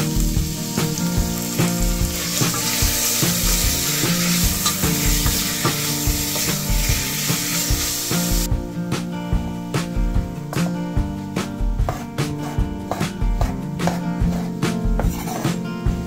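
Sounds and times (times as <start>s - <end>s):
bacon sizzling in a pot: 0.0s - 8.5s
music with steady beat: 0.0s - 16.0s
wooden spatula stirring: 13.9s - 15.5s.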